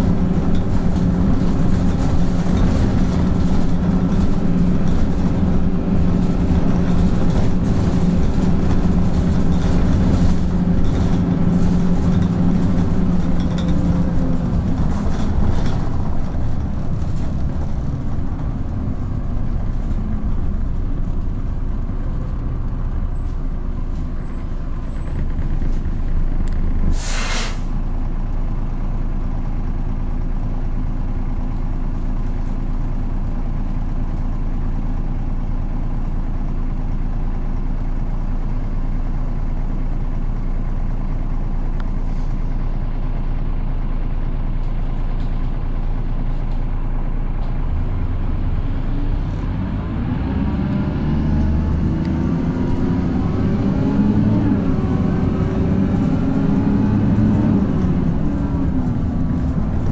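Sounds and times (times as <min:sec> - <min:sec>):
bus diesel engine: 0:00.0 - 0:59.9
compressed air hiss: 0:26.9 - 0:27.7.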